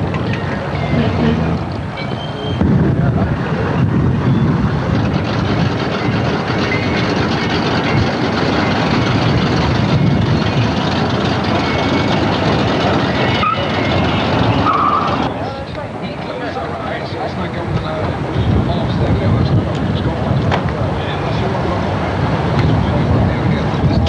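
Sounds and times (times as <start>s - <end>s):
car engines driving slowly: 0.0s - 24.0s.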